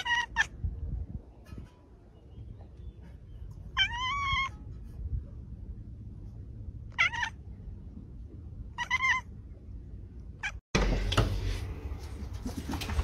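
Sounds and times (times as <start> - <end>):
cat meowing: 3.7 - 4.5, 6.9 - 7.4, 8.7 - 9.3.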